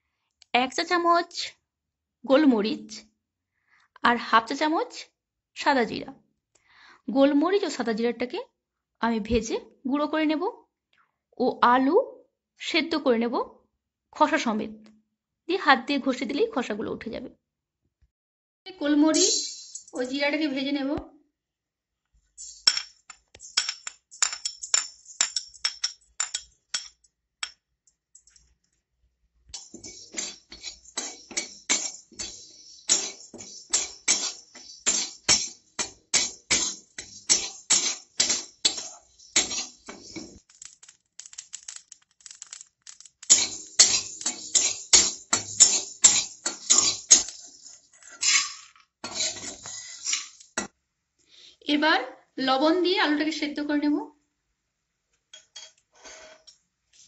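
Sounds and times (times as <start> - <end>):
spatula scraping metal pan: 29.6 - 40.4, 43.2 - 50.7, 55.9 - 56.5.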